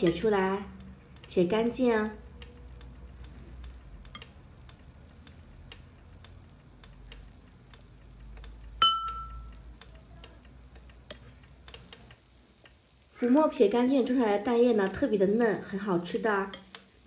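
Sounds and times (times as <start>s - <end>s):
clock ticking: 0.0s - 12.8s
spoon clinking against bowl: 8.8s - 9.5s.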